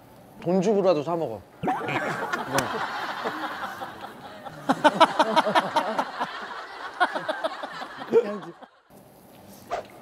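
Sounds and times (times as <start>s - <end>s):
person laughing: 1.6s - 8.6s.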